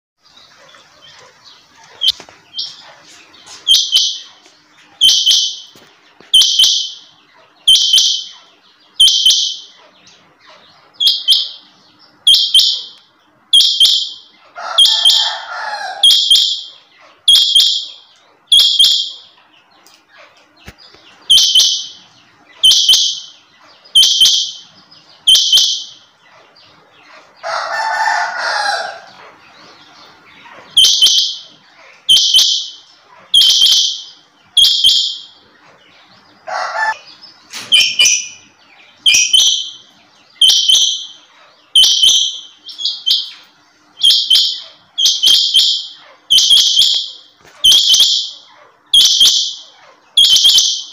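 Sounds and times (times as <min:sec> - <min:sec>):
quail calling: 0:13.6 - 0:19.4, 0:20.1 - 0:38.5, 0:44.0 - 0:50.9.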